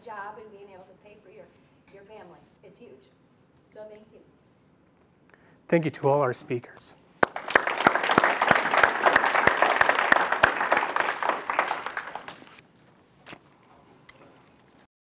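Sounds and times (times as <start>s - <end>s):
audience applauding: 7.2s - 12.6s.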